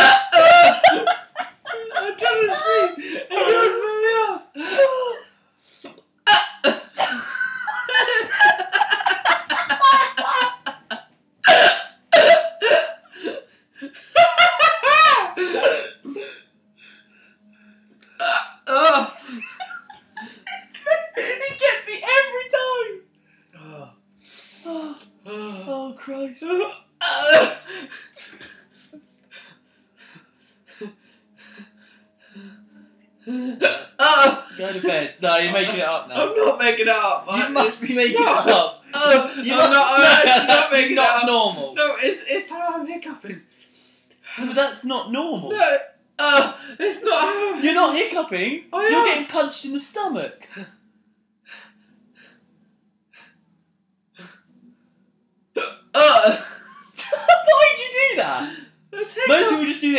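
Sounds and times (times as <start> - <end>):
man laughing: 0.0 - 5.2, 7.0 - 11.0, 14.0 - 15.9, 18.7 - 21.6, 37.3 - 41.1, 56.0 - 59.7
man hiccuping: 6.3 - 7.2, 18.2 - 19.1, 27.0 - 27.6.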